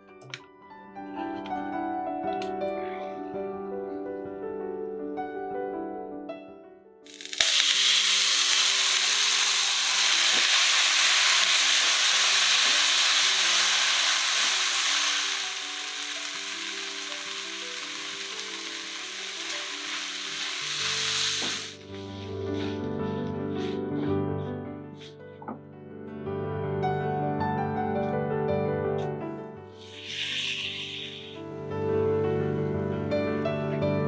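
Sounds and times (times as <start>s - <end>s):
paste sizzling in hot oil: 7.1s - 22.0s, 29.6s - 31.8s.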